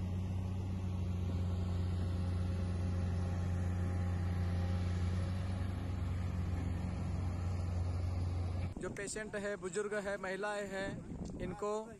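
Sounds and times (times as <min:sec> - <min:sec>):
excavator diesel engine running: 0:00.0 - 0:08.8.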